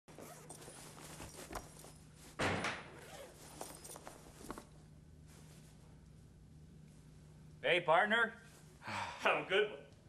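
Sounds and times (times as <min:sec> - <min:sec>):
stall door banging shut: 0:02.4 - 0:02.9.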